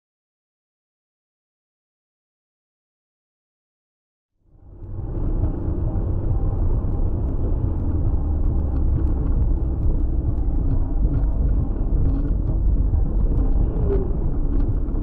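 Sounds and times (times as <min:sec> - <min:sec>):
car driving on highway: 0:04.4 - 0:15.0.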